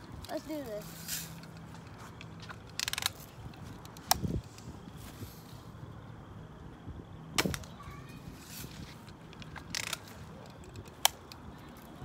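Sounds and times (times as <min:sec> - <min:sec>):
rattle of clicks: 0:01.3 - 0:04.7, 0:09.0 - 0:12.0
bb gun firing: 0:07.4 - 0:07.7.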